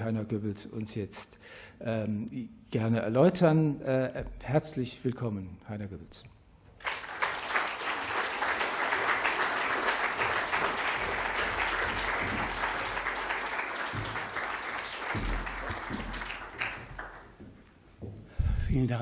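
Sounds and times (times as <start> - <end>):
audience applauding: 6.8 - 17.4.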